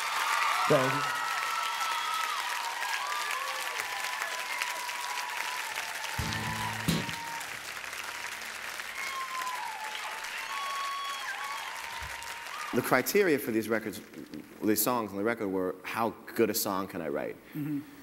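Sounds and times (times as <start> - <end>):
audience applauding: 0.0 - 14.3
guitar chord ringing: 6.2 - 7.4
audience whistling: 6.2 - 7.7, 8.8 - 12.4.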